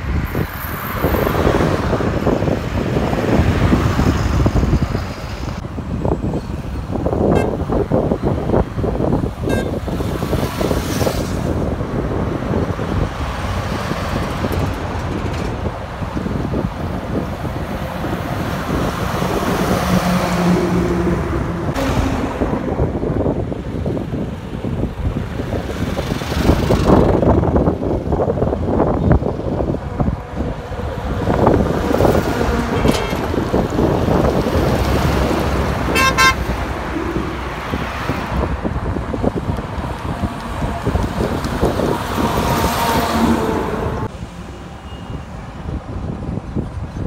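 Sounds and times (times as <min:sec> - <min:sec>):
highway traffic passing: 0:00.0 - 0:47.0
vehicle horn toots: 0:07.3 - 0:07.7, 0:09.4 - 0:09.9, 0:35.9 - 0:36.5.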